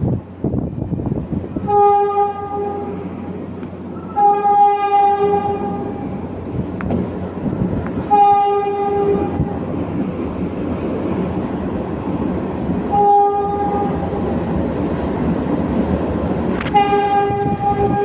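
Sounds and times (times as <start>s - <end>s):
train rumble: 0.0s - 18.0s
train horn blasts: 1.6s - 3.1s, 4.0s - 6.2s, 8.0s - 9.6s, 12.9s - 14.2s, 16.6s - 18.0s.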